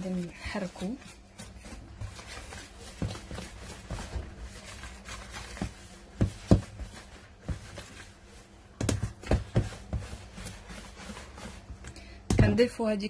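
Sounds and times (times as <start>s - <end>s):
whisk scraping metal bowl: 9.2s - 11.8s.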